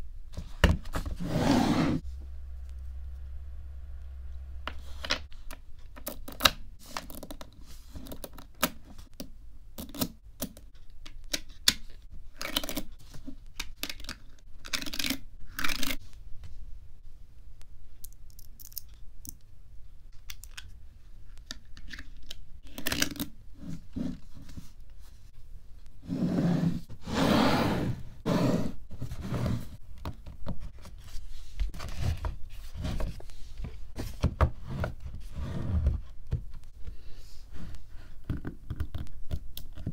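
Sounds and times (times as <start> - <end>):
magnet balls clicking together: 18.0 - 19.5.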